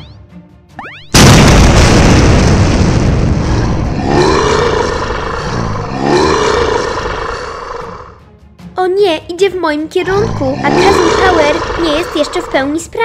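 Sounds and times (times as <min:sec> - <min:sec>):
explosion boom: 0:01.1 - 0:07.2
dinosaur roar: 0:03.1 - 0:08.2, 0:10.1 - 0:12.8.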